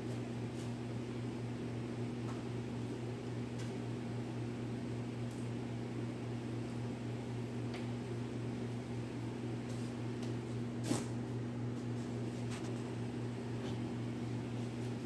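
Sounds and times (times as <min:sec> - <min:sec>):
low electric hum: 0:00.0 - 0:15.0.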